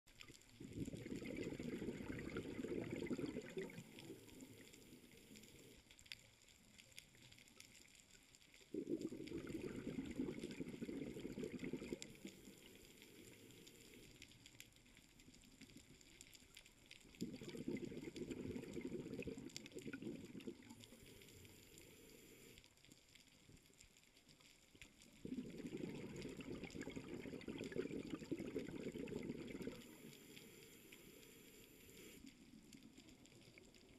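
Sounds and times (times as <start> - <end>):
quiet underwater crackling: 0.0 - 33.9
diver's bubbles gurgling: 0.1 - 5.1, 8.7 - 14.1, 17.0 - 21.1, 25.1 - 30.3.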